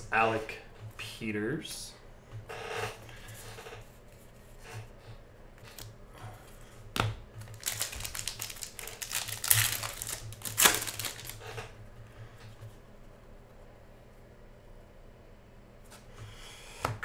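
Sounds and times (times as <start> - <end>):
foil wrapper tearing and crinkling: 7.4 - 11.6.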